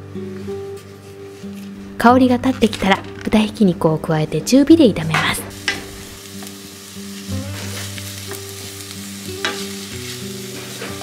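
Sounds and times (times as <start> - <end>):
meat sizzling in a frying pan: 5.5 - 11.0.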